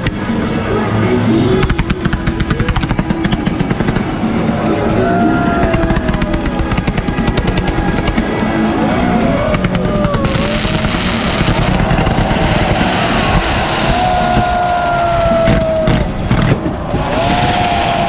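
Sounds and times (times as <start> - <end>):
music: 0.0 - 18.0
fireworks crackling: 9.5 - 18.0
fountain fireworks hissing: 9.6 - 18.0.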